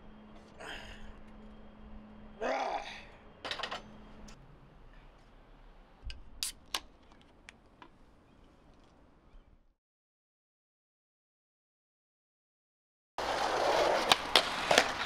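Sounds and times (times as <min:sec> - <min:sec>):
man straining breath: 0:00.5 - 0:01.2.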